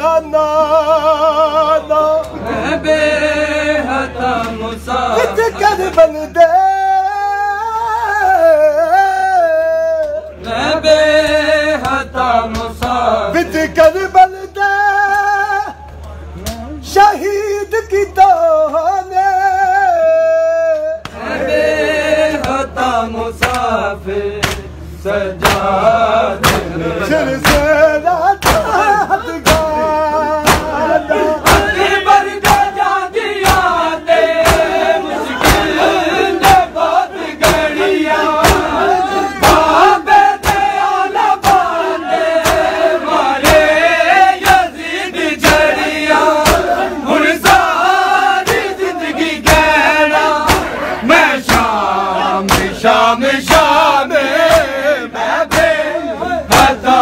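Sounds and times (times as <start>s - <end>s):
crowd of men chanting: 0.0s - 15.8s, 16.8s - 57.0s
hands slapping chests: 24.4s - 24.7s, 28.4s - 28.7s, 30.4s - 30.8s, 32.4s - 32.8s, 33.4s - 33.8s, 34.4s - 34.8s, 35.4s - 35.8s, 38.4s - 38.8s, 40.4s - 41.8s, 42.4s - 42.8s, 46.4s - 46.8s, 48.4s - 48.8s, 49.4s - 49.8s, 50.4s - 50.8s, 51.5s - 51.8s, 52.4s - 52.8s, 53.4s - 53.8s, 54.4s - 54.8s, 55.4s - 55.8s.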